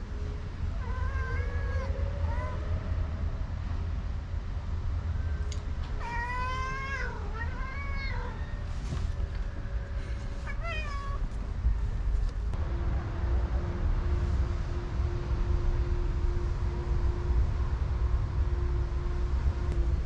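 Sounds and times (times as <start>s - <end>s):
steady low rumble: 0.0s - 20.0s
cat meowing: 0.8s - 2.6s, 6.0s - 8.7s, 10.4s - 11.3s.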